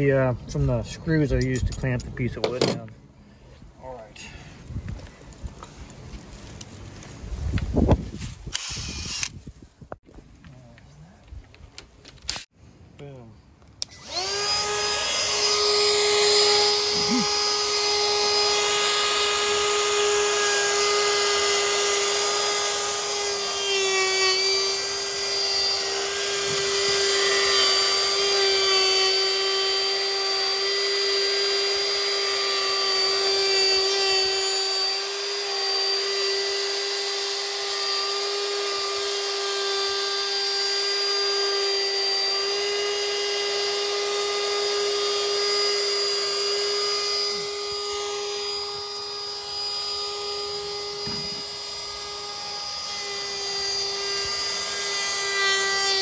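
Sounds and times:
router high whine: 0:08.5 - 0:09.3, 0:13.8 - 0:56.0.

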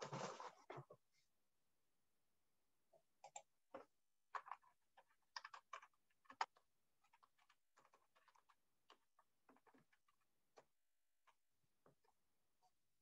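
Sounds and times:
faint irregular clicks: 0:03.2 - 0:12.8.

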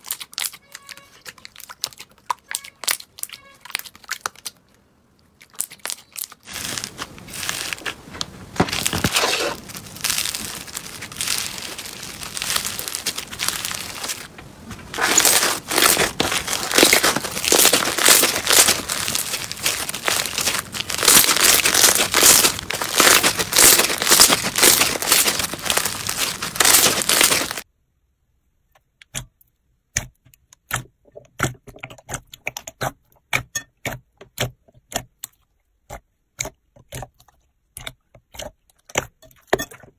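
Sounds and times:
slime crackling and crinkling: 0:00.0 - 0:04.7, 0:05.4 - 0:27.7.

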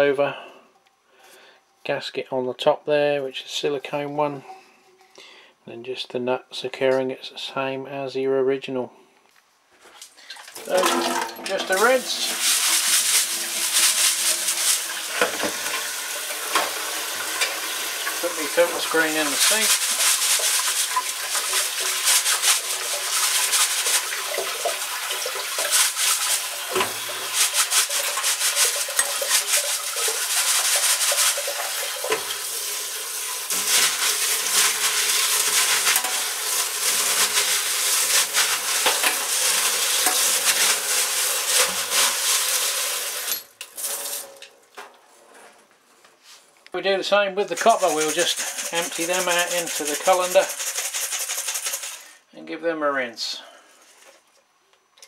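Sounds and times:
water pouring onto metal colander: 0:10.2 - 0:44.4, 0:47.5 - 0:52.1.

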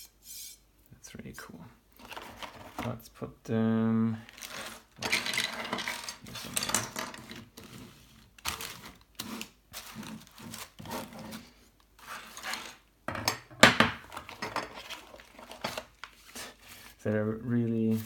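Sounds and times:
bubble wrap handled: 0:04.2 - 0:05.3, 0:07.2 - 0:12.8, 0:14.2 - 0:18.0
metal parts clinking on a table: 0:05.0 - 0:07.4.

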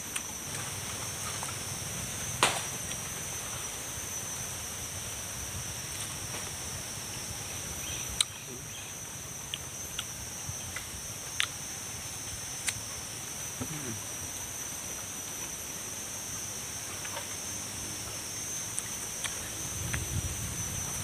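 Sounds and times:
insects droning: 0:00.0 - 0:21.0.

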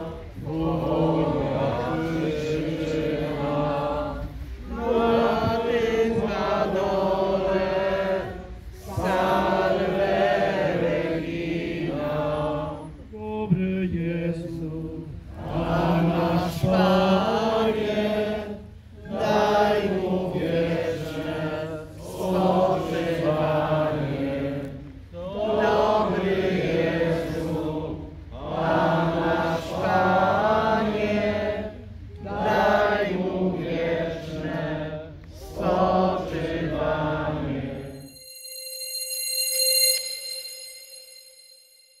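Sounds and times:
crowd singing a hymn unaccompanied: 0:00.0 - 0:38.0.

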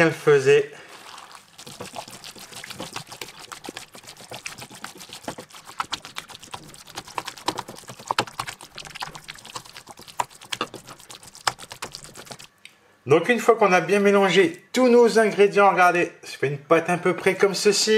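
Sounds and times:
hands kneading wet mixture: 0:00.8 - 0:12.8.

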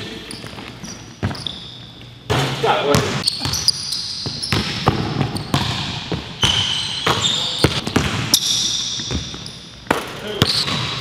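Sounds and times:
sneakers squeaking: 0:00.0 - 0:11.0
basketballs bouncing on wood floor: 0:02.3 - 0:11.0.

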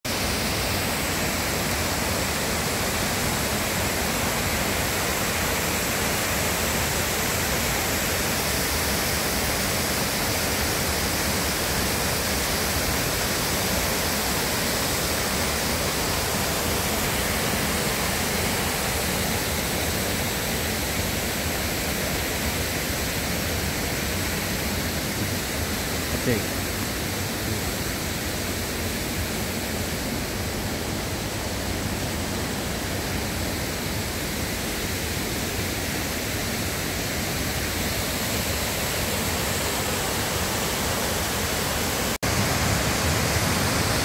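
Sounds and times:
waterfall rushing: 0:00.1 - 0:44.0.

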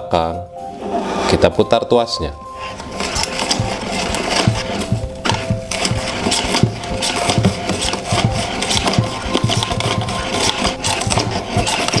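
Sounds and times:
onion slicer chopping: 0:02.6 - 0:12.0.

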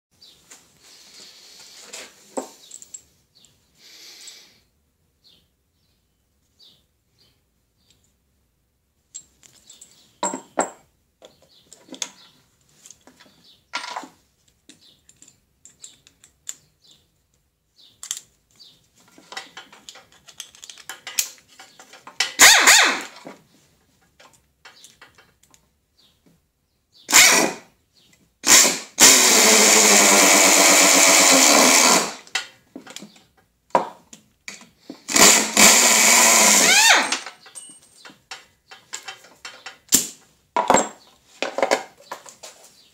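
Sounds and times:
handling clicks and knocks: 0:09.1 - 0:16.7, 0:18.0 - 0:22.4, 0:23.2 - 0:26.4, 0:32.3 - 0:35.0, 0:37.1 - 0:42.5
pneumatic impact screwdriver: 0:22.3 - 0:23.2, 0:27.1 - 0:27.7, 0:28.4 - 0:32.3, 0:35.0 - 0:37.3.

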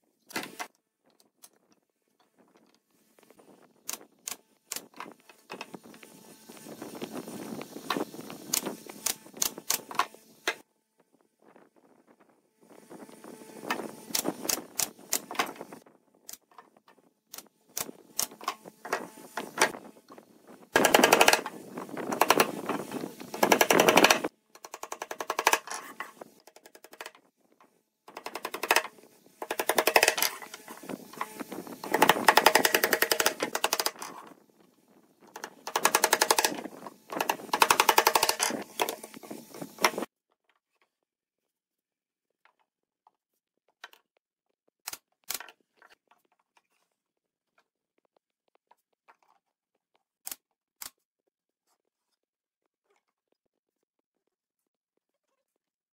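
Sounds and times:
pneumatic nailer shots: 0:07.9 - 0:10.6, 0:20.8 - 0:26.1, 0:28.1 - 0:34.0, 0:35.3 - 0:40.1
rapid taps and clicks: 0:31.8 - 0:34.0, 0:35.3 - 0:39.1.

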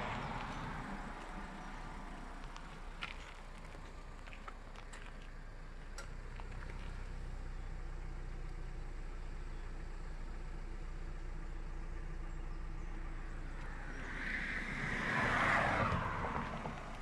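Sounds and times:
steady low rumble: 0:00.0 - 0:17.0
vehicle driving past: 0:12.9 - 0:17.0.

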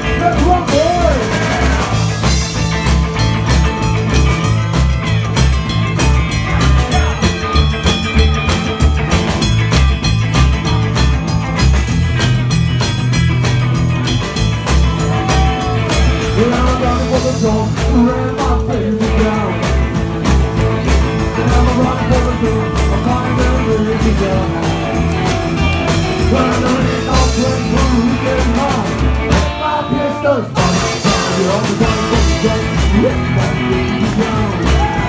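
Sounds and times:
man singing into microphone: 0:00.0 - 0:02.1, 0:16.2 - 0:19.8, 0:21.3 - 0:24.8, 0:26.2 - 0:35.0
drum beat: 0:00.0 - 0:29.7, 0:30.6 - 0:35.0
electric guitar: 0:00.0 - 0:35.0.

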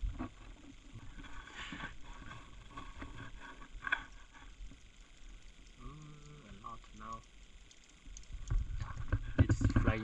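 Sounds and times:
wind rumble on microphone: 0:00.0 - 0:00.3, 0:08.3 - 0:10.0.

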